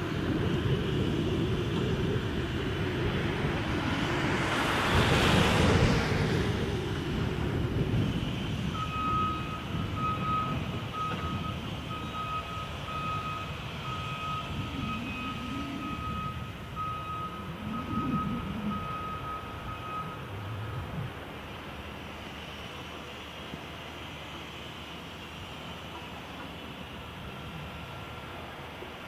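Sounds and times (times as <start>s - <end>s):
diesel engines rumbling: 0.0s - 29.0s
back-up alarm beeping: 8.8s - 20.9s.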